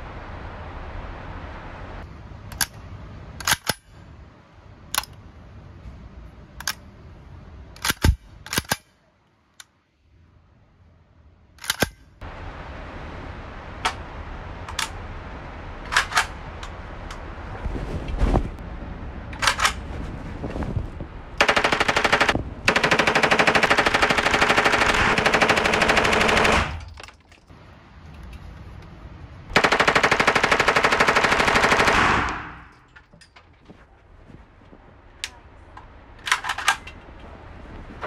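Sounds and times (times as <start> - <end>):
metallic clicks of gun action: 3.4 - 4.0, 4.9 - 5.2, 6.6 - 6.9, 7.8 - 9.7, 11.6 - 12.0.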